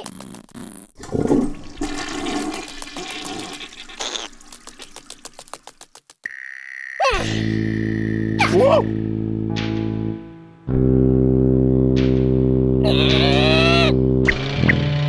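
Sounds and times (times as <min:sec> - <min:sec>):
cartoon swirling water: 0:01.0 - 0:05.8.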